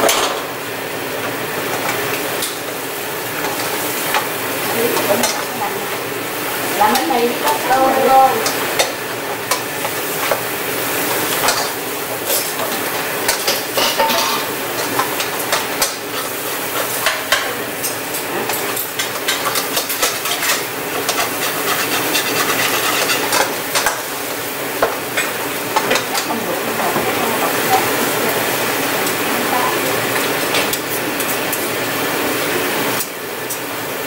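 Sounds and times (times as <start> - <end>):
crab legs sizzling in skillet: 0.0 - 34.0
metal tongs clicking and scraping pan: 8.4 - 10.4, 11.0 - 24.1.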